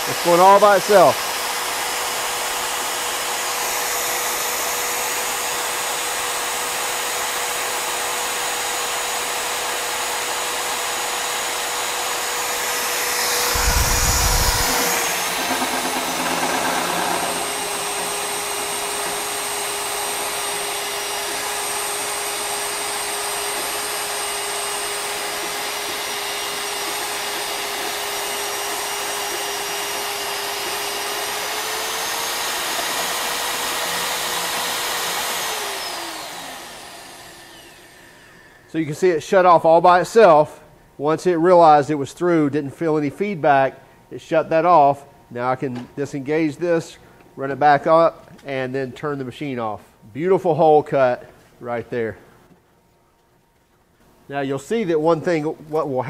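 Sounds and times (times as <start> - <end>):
magnetic drill motor whining: 0.0 - 38.7.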